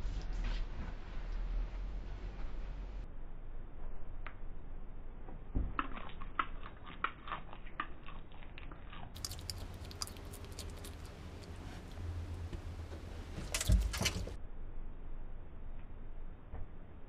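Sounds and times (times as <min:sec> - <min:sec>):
low steady hum: 0:00.0 - 0:17.0
lizard crunching an insect: 0:05.6 - 0:12.0.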